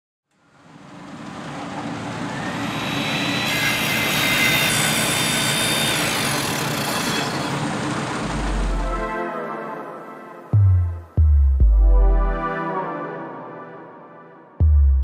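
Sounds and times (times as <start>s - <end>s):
rumbling whoosh: 8.2s - 9.0s
deep low boom: 10.6s - 12.5s, 14.6s - 15.0s.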